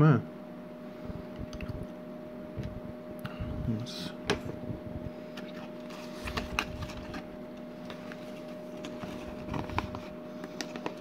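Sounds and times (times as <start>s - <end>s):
faint electrical hum: 0.0s - 11.0s
hands handling cardboard box: 5.3s - 11.0s.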